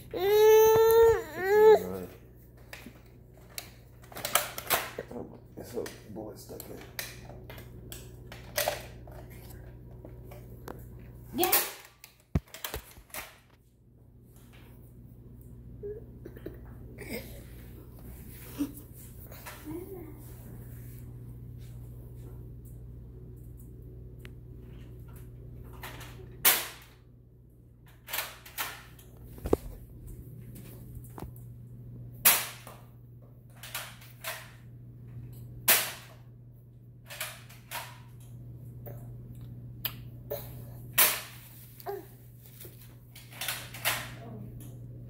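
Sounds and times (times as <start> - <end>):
toy dart blaster pops: 26.4 - 26.9, 32.2 - 32.8, 35.7 - 36.2.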